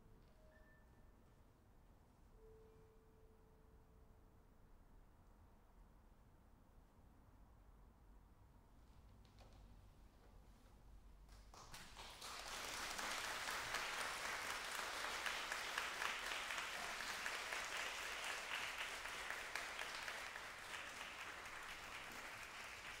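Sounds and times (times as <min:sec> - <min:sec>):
audience applauding: 0:11.5 - 0:23.0.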